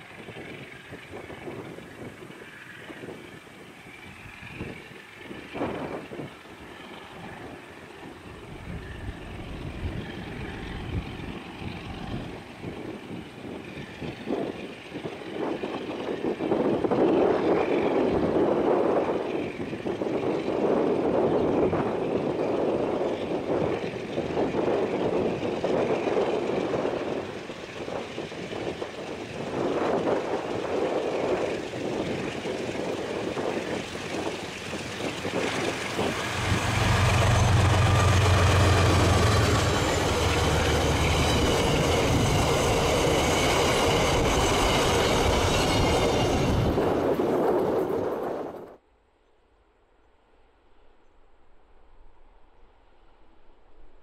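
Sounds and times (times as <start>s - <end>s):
locomotive engine drone: 0.0s - 48.6s
train wheels rumbling and squealing: 0.0s - 48.8s.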